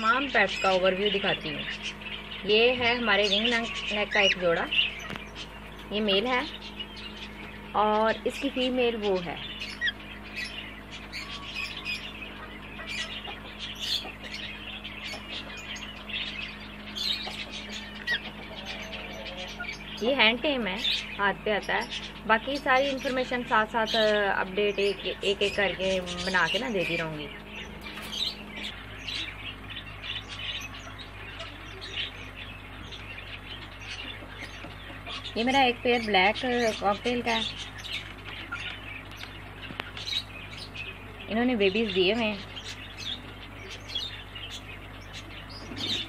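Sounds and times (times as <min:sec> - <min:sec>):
birds squawking and chirping: 0:00.0 - 0:46.0
steady low hum: 0:00.0 - 0:46.0.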